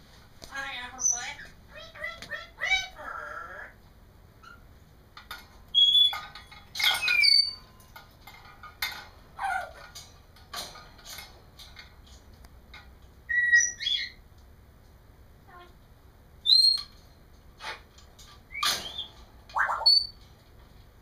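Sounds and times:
parrot whistles and calls: 0:05.7 - 0:06.2, 0:07.0 - 0:07.7, 0:13.3 - 0:14.2, 0:16.4 - 0:16.9, 0:18.5 - 0:20.2.

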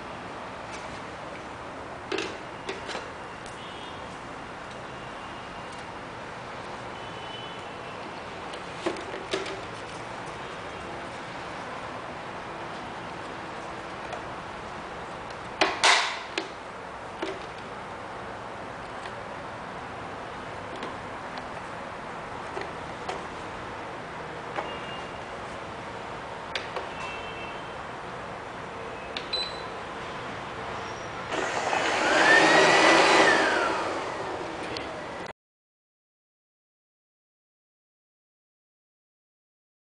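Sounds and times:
robot vacuum beeping: 0:31.3 - 0:34.0
vacuum motor whirring: 0:31.3 - 0:35.0.

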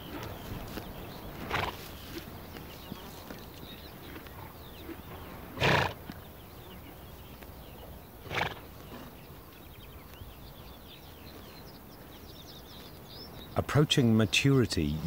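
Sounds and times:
horse snorting: 0:00.0 - 0:06.3, 0:08.2 - 0:09.2.

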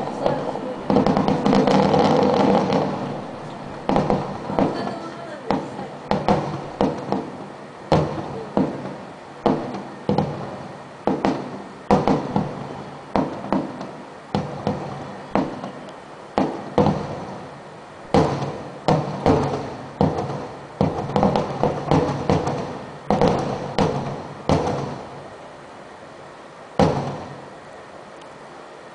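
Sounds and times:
firework shells bursting: 0:00.0 - 0:25.4, 0:26.7 - 0:27.7
rolling echo of bangs: 0:00.3 - 0:25.2, 0:26.8 - 0:27.5.

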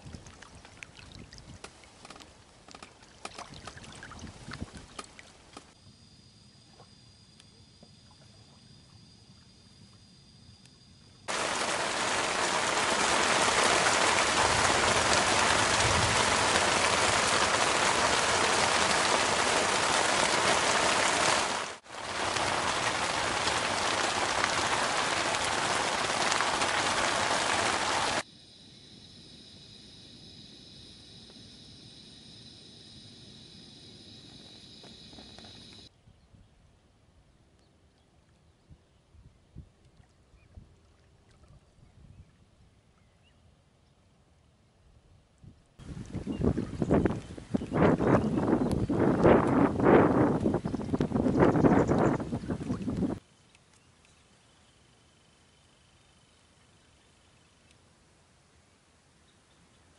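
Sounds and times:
heavy rain hissing: 0:11.3 - 0:28.2.

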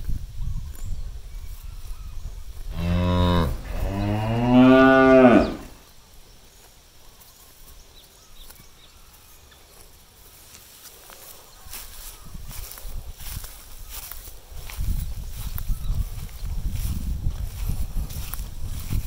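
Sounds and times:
cow mooing: 0:02.7 - 0:05.8.

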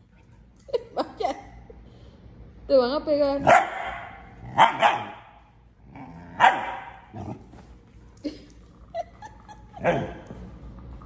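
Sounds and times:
husky barking and yipping: 0:03.5 - 0:05.3, 0:06.4 - 0:07.1.

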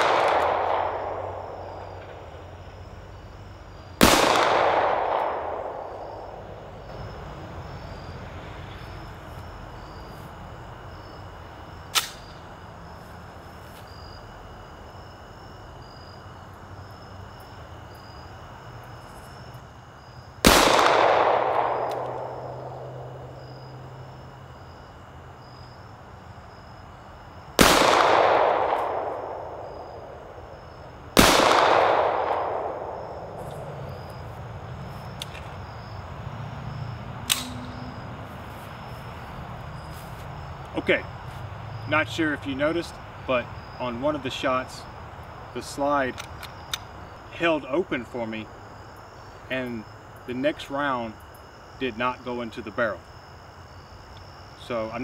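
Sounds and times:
pistol shots with echo: 0:00.0 - 0:02.2, 0:04.0 - 0:06.5, 0:20.4 - 0:23.3, 0:27.6 - 0:30.3, 0:31.1 - 0:33.4
sharp click: 0:11.9 - 0:12.4, 0:37.2 - 0:37.8.

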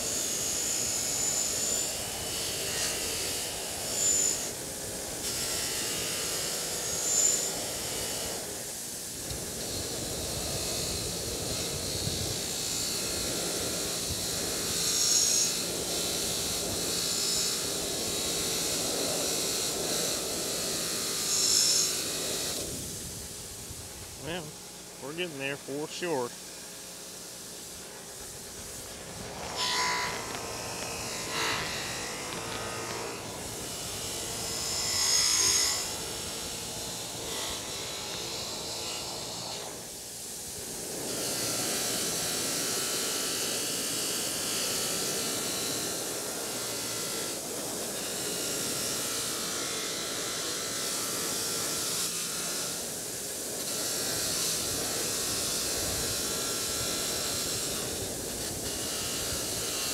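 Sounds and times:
wire wheel scrubbing rusty metal: 0:27.6 - 0:36.2.

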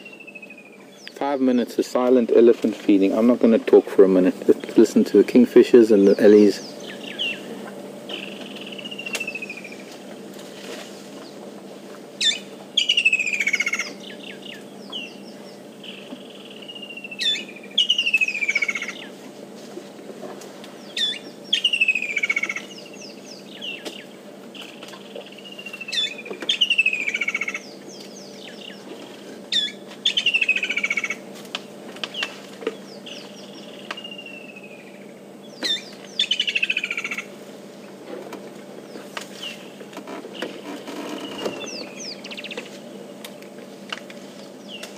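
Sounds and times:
kingfisher singing trills: 0:05.8 - 0:07.5, 0:12.2 - 0:19.1, 0:20.8 - 0:28.8, 0:29.5 - 0:31.2, 0:32.8 - 0:37.3, 0:40.4 - 0:42.6.

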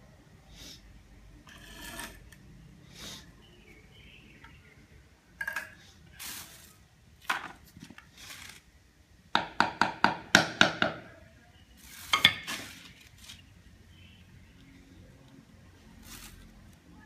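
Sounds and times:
soft scrapes: 0:01.5 - 0:02.3, 0:15.8 - 0:17.0
mallet knocking on ceramic tile: 0:09.4 - 0:11.0.

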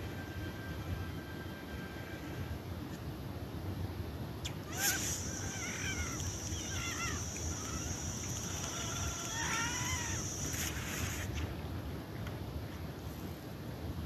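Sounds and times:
thin high whine: 0:00.0 - 0:03.6, 0:04.4 - 0:11.6.

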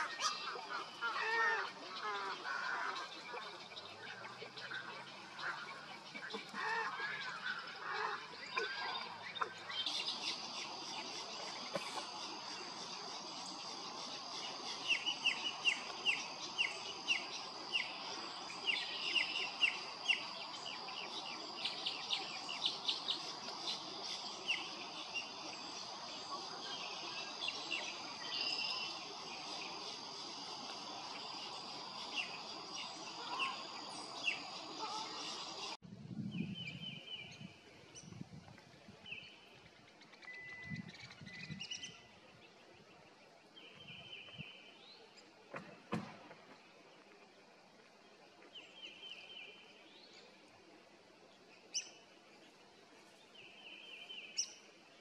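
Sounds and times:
birds chirping: 0:00.0 - 0:35.8.

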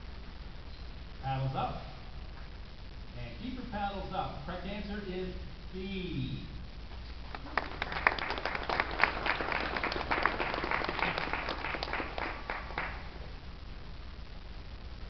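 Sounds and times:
people applauding: 0:07.2 - 0:13.3.

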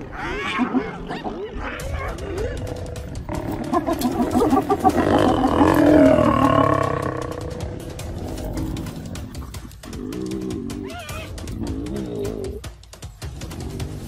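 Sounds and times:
lions snarling and growling: 0:00.0 - 0:12.7, 0:13.3 - 0:14.0.

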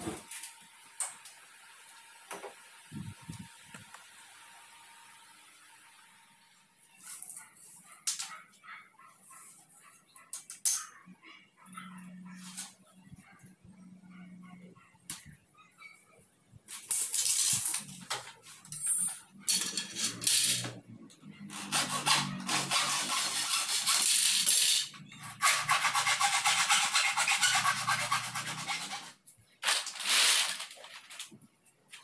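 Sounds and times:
hacksaw cutting metal: 0:18.7 - 0:20.7, 0:21.4 - 0:29.2.

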